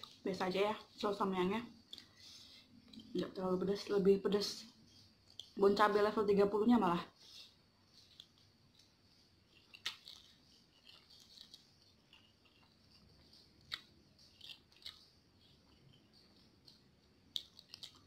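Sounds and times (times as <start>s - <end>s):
noodles slurped and chewed: 9.5s - 16.0s.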